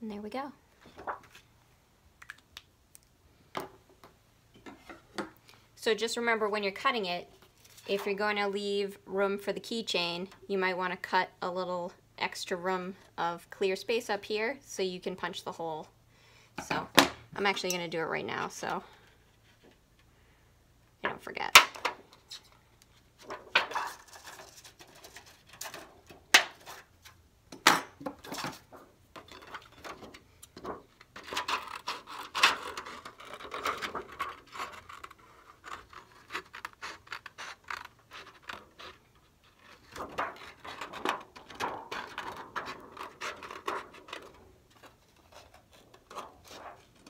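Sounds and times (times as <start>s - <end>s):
scissors cutting thin plastic: 31.2s - 40.8s.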